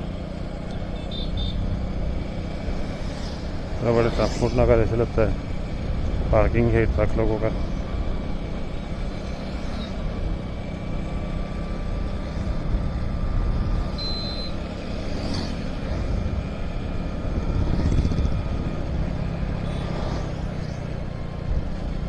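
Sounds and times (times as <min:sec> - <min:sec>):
motorcycle engine running: 0:00.0 - 0:22.0
wind and road noise: 0:00.0 - 0:22.0.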